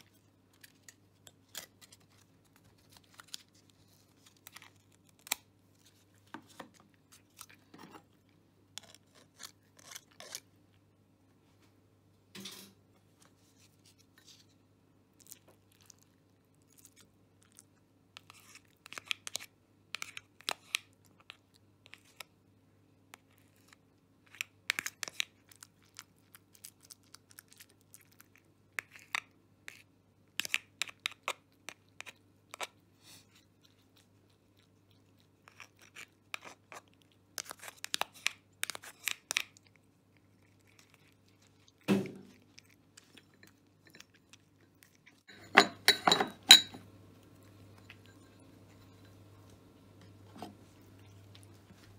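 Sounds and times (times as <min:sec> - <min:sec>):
cat chewing food: 0:23.0 - 0:45.3, 0:46.9 - 0:49.8, 0:50.6 - 0:51.9.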